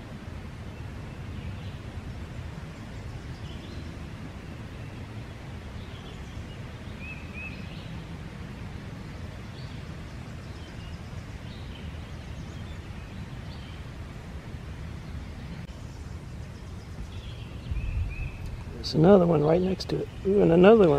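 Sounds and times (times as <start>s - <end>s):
low outdoor rumble: 0.0s - 20.9s
faint bird chirps: 15.1s - 20.9s.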